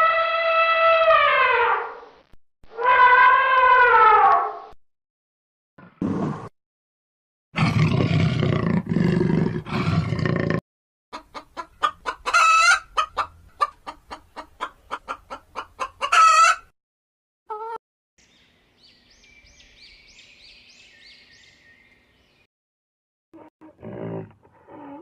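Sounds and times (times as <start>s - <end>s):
rough animal call: 0.0s - 2.0s, 2.7s - 4.6s, 7.6s - 10.6s, 23.4s - 25.0s
hens clucking: 11.1s - 16.7s.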